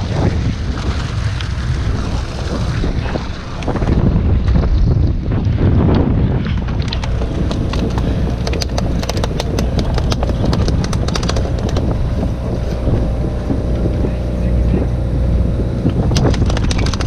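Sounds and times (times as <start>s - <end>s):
boat engine hum: 0.0s - 17.0s
wind on microphone: 0.0s - 17.0s
fish tail flapping on deck: 6.5s - 12.2s, 16.1s - 17.0s.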